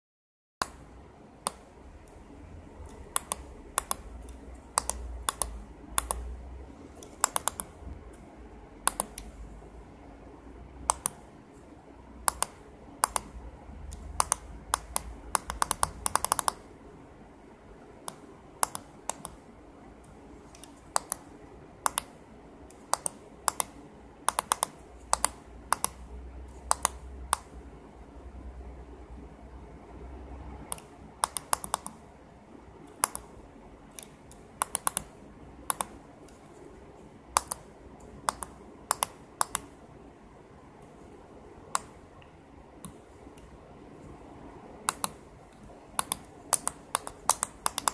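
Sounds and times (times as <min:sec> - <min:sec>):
push buttons clicking: 0:07.0 - 0:07.7, 0:13.9 - 0:16.6, 0:46.0 - 0:47.9.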